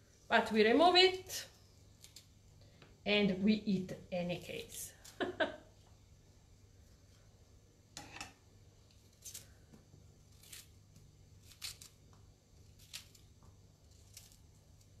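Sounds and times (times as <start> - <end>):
knife scraping artichoke: 10.2 - 12.0, 12.6 - 14.4.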